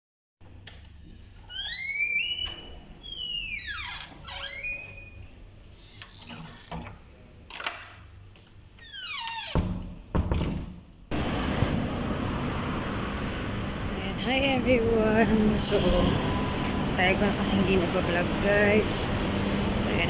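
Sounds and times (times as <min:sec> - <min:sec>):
door hinge creaking: 0:01.5 - 0:07.8, 0:08.8 - 0:09.9.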